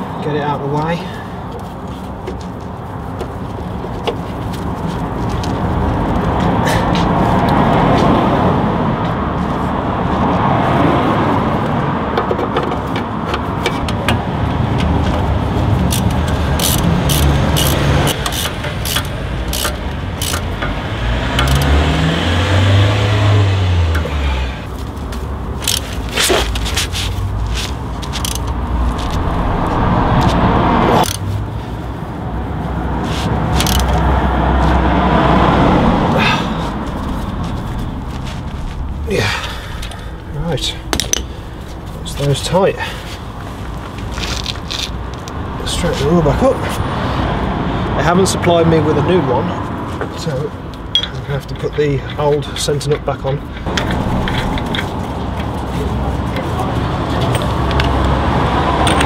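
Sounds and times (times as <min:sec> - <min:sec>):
hand tools clicking on metal: 0:15.8 - 0:20.8, 0:21.4 - 0:21.7, 0:28.1 - 0:28.5, 0:33.6 - 0:34.0
loud steady rumble: 0:25.4 - 0:49.2.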